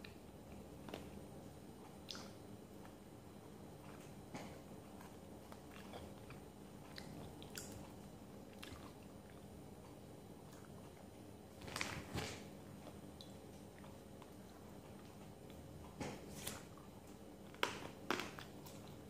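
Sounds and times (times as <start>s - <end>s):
vegetables being chewed: 3.8s - 19.0s.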